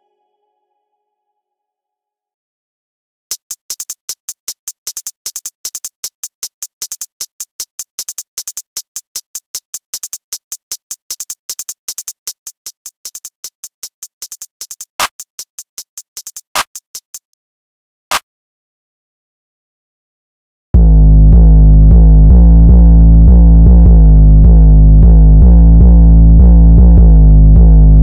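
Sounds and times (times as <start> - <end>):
clap sample: 3.3 - 12.4, 14.2 - 15.4, 16.1 - 17.2
drum machine hi-hat ticks: 3.3 - 17.3.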